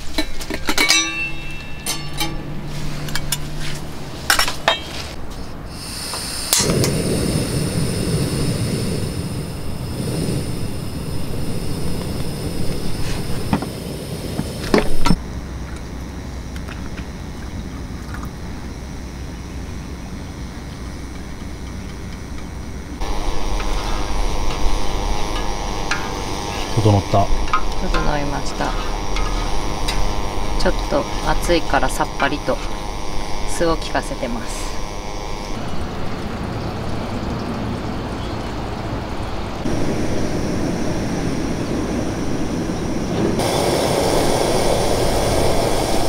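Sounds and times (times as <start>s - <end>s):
pot clinking on metal grate: 0.1s - 2.5s
rushing flame: 2.6s - 15.2s, 22.5s - 36.2s, 39.6s - 46.0s
gas hiss: 4.7s - 15.2s, 23.0s - 35.6s, 39.6s - 46.0s
stove igniter click: 6.1s - 7.0s.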